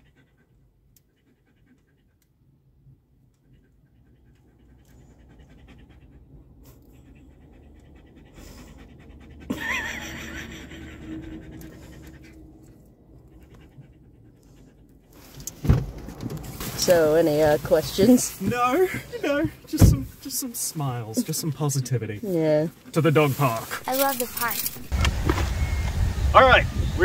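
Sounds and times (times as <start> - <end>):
dog panting: 0.0 - 15.5
car door shutting: 15.4 - 20.2.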